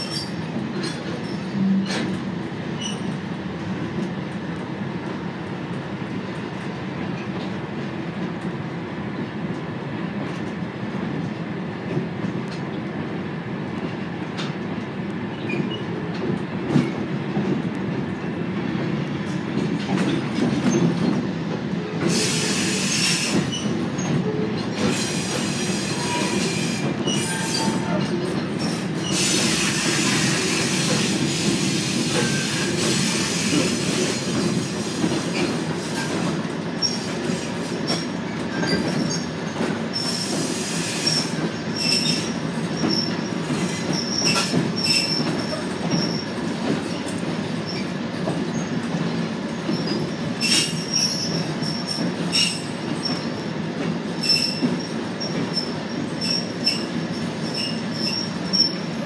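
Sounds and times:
train wheel screeching: 0:00.0 - 0:02.2, 0:02.8 - 0:03.2, 0:22.0 - 0:48.8, 0:49.6 - 0:53.5, 0:54.1 - 0:59.0
train wheels rolling rumble: 0:00.0 - 0:59.0.

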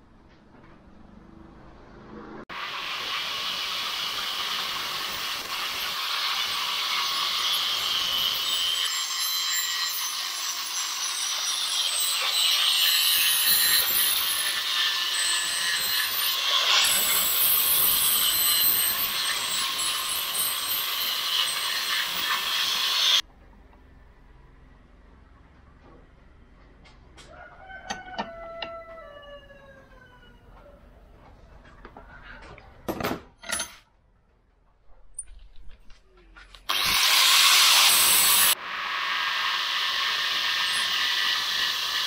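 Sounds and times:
angle grinder grinding metal: 0:02.5 - 0:23.2, 0:36.7 - 0:38.6, 0:39.3 - 0:42.0.

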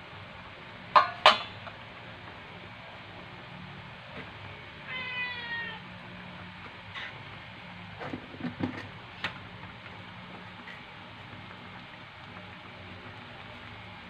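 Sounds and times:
cat meowing: 0:04.8 - 0:05.9.

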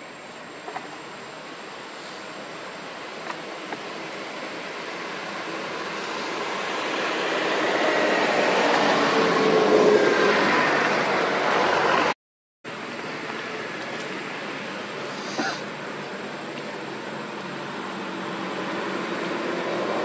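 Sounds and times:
passing vehicle engine rushing: 0:01.8 - 0:12.2, 0:14.7 - 0:20.0.

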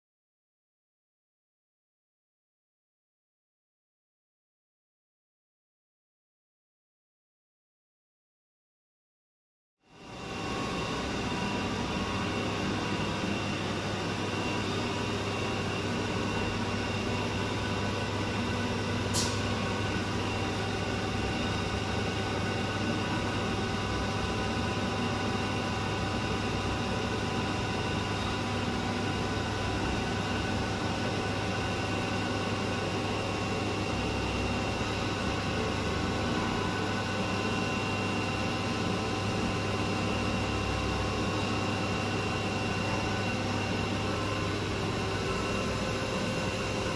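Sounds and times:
milling machine humming and whining: 0:09.9 - 0:46.9.

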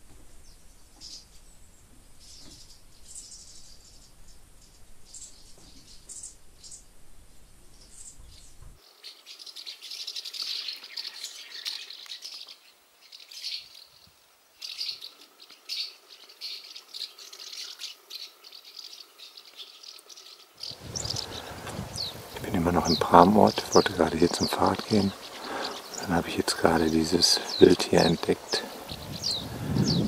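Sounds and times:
birds rattling chatter: 0:07.8 - 0:14.0, 0:14.6 - 0:30.0.

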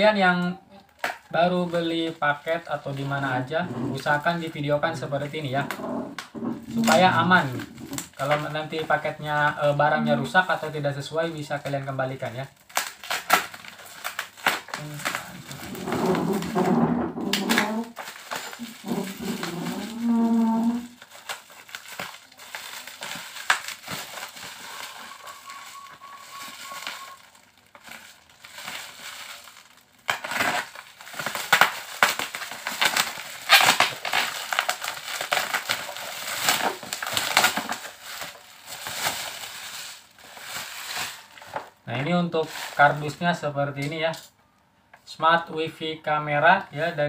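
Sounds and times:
plastic wrapping crinkling and tearing: 0:00.8 - 0:43.2
voice-like hum: 0:18.6 - 0:21.0.

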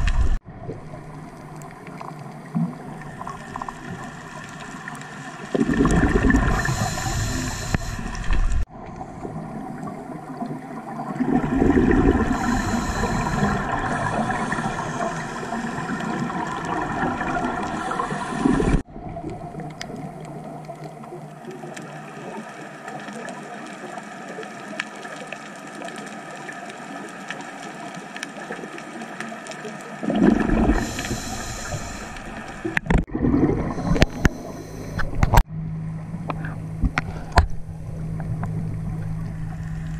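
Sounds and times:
exhaled bubbles rushing underwater: 0:00.0 - 0:35.4
steady underwater hum: 0:00.0 - 0:39.9
scuba regulator inhaling: 0:06.3 - 0:08.4, 0:12.0 - 0:16.3, 0:17.6 - 0:18.8, 0:30.5 - 0:32.6, 0:33.5 - 0:35.4.

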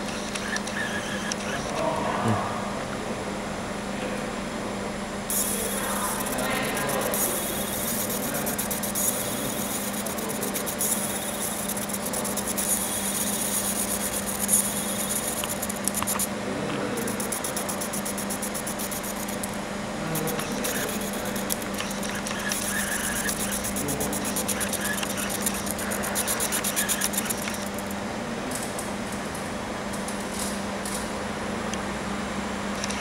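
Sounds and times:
low machine hum: 0:00.0 - 0:33.0
laser crackling on metal: 0:05.3 - 0:16.3, 0:17.0 - 0:19.6, 0:20.2 - 0:27.8.

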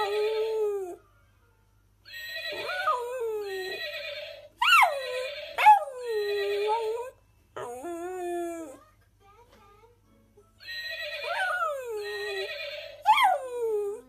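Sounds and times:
dog howling and yelping: 0:02.6 - 0:03.8, 0:04.6 - 0:08.8, 0:11.2 - 0:14.0.

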